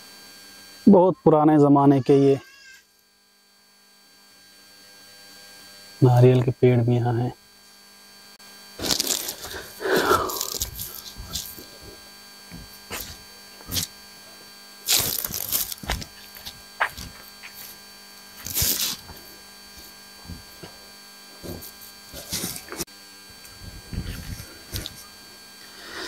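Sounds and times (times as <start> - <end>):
steady electrical hum: 0.0 - 26.0
footsteps on dry leaves: 8.8 - 12.0, 12.6 - 13.8, 14.9 - 20.8.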